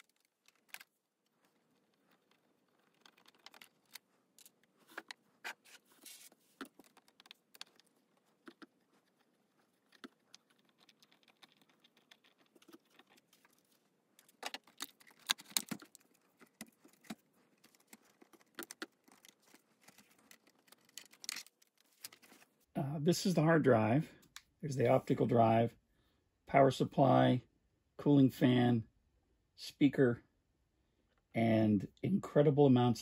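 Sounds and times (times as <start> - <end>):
screws and metal parts rattling: 0.0 - 5.2, 5.9 - 22.3.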